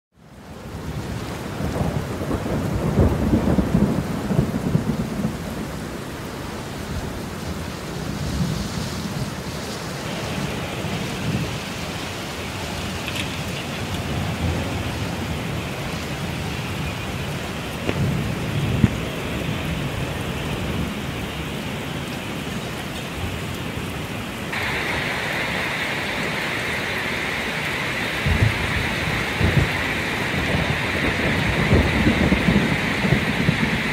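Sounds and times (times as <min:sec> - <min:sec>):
steady rain: 0:00.1 - 0:33.9
thunder rumbling: 0:00.8 - 0:33.9.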